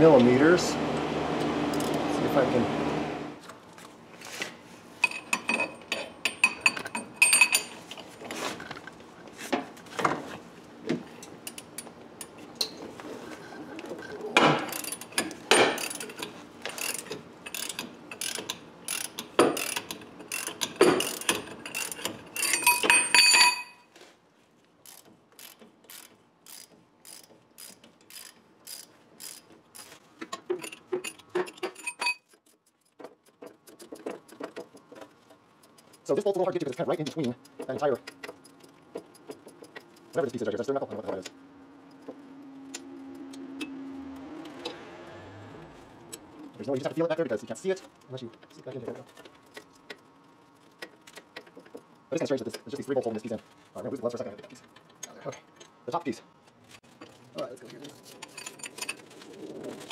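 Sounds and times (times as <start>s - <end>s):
socket ratchet clicking: 16.8s - 22.6s.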